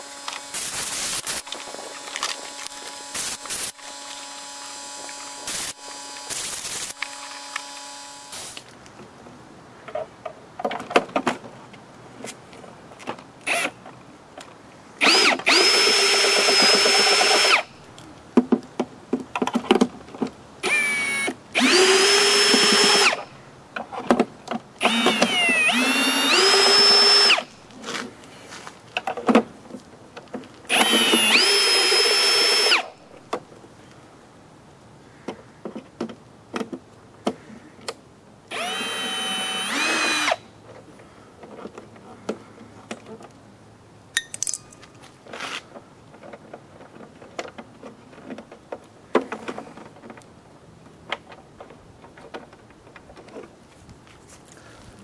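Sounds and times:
cordless drill motor whine: 0.0s - 8.6s, 15.0s - 17.7s, 20.6s - 23.3s, 24.8s - 27.5s, 30.7s - 33.0s, 38.5s - 40.4s
handling clicks and knocks: 17.9s - 20.4s.

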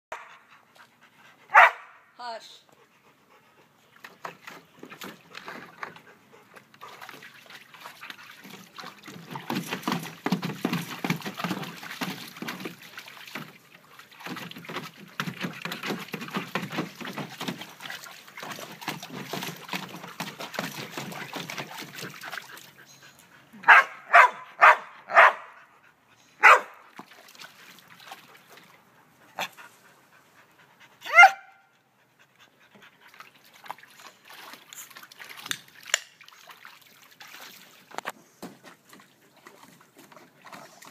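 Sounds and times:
dog barking: 1.5s - 2.0s, 23.6s - 25.6s, 26.4s - 26.8s, 31.1s - 31.6s
dog yelping: 31.0s - 31.6s.

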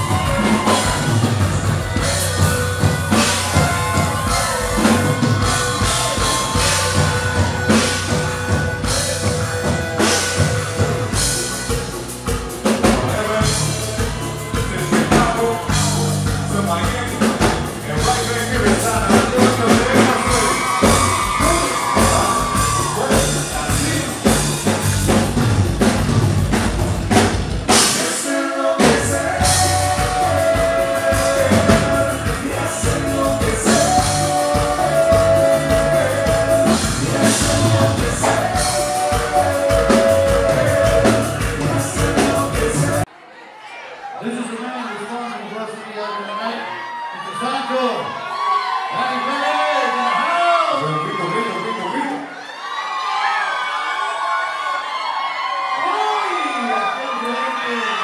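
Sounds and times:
drum kit: 0.0s - 43.1s
live band playing: 0.0s - 43.1s
person singing: 12.6s - 24.8s, 27.8s - 43.1s.

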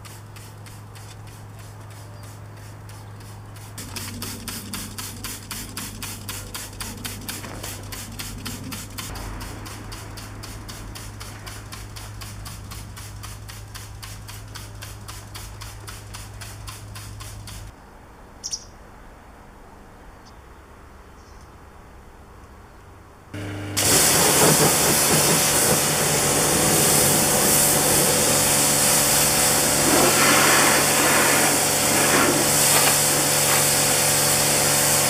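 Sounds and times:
steady low hum: 23.1s - 29.9s
rapid scrubbing strokes: 23.8s - 35.0s.

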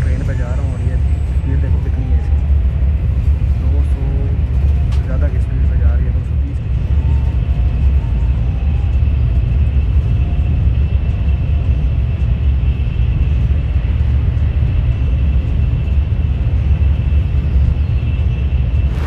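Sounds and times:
train cabin low rumble: 0.0s - 19.0s.

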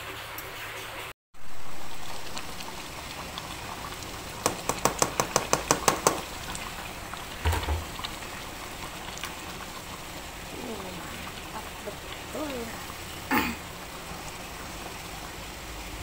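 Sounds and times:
broth simmering in a wok: 0.0s - 16.0s
soft thump: 7.5s - 8.0s.

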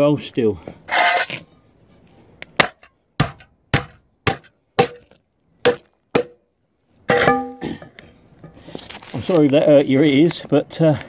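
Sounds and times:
hammer striking metal: 5.6s - 6.4s, 7.1s - 7.6s.

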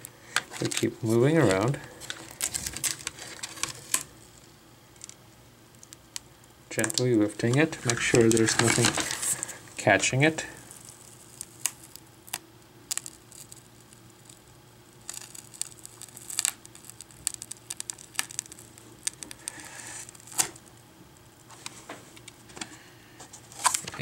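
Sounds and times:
adhesive crackling as peeled: 0.4s - 4.1s, 6.8s - 9.6s, 10.6s - 14.4s, 15.0s - 20.6s.

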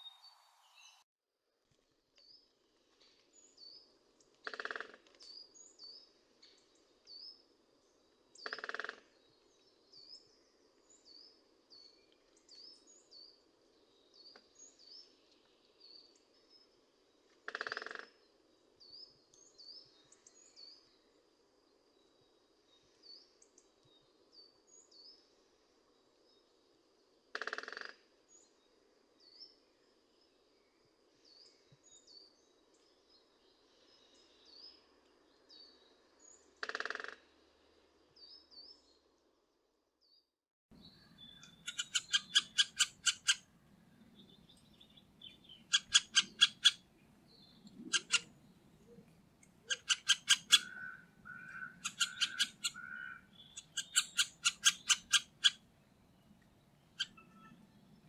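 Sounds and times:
woodpecker tapping on wood: 4.4s - 5.2s, 17.5s - 18.1s, 49.7s - 55.3s.

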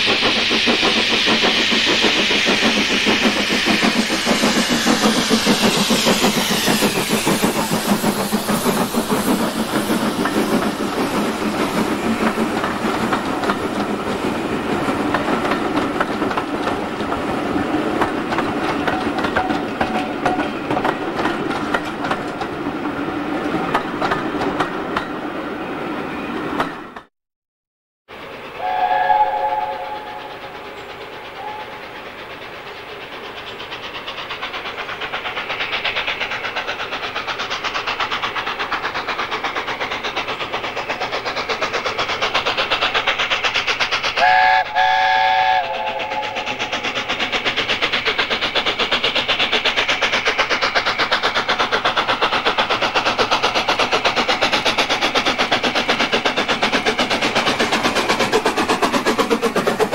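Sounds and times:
steam locomotive exhaust beats: 0.0s - 25.6s, 28.1s - 59.9s
steam locomotive chime whistle: 28.5s - 32.0s, 44.2s - 46.6s.

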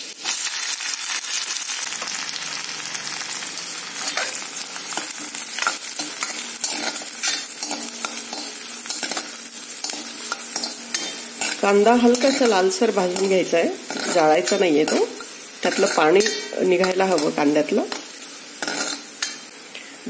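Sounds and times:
onion sizzling in hot oil: 0.0s - 20.0s
steel spoon scraping a pan: 4.0s - 19.5s.

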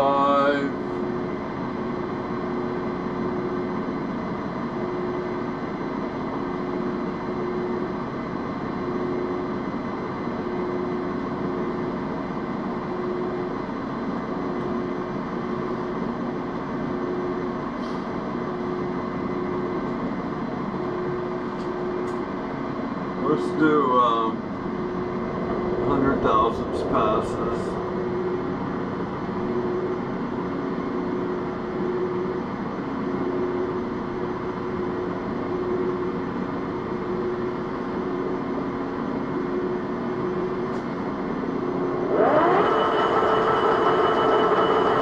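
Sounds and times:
metal lathe running: 41.8s - 45.0s.

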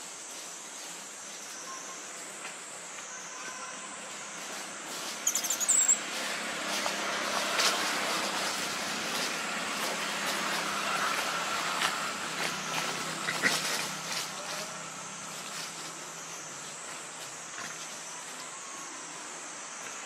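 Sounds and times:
rapid high chirping calls: 5.2s - 6.0s.

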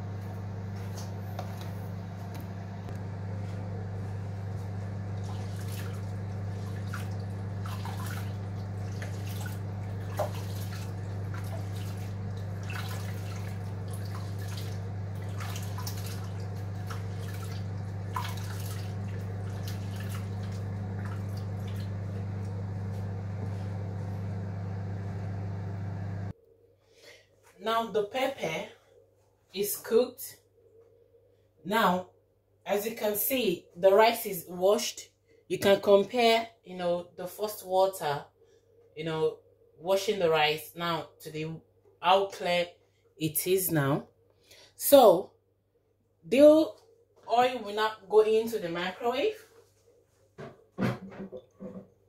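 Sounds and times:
microwave humming: 0.0s - 26.3s
water swishing in a bowl: 3.3s - 26.3s.

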